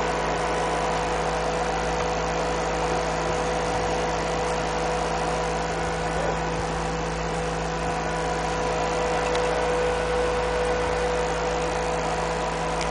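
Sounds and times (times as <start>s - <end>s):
steady machine hum: 0.0s - 12.9s.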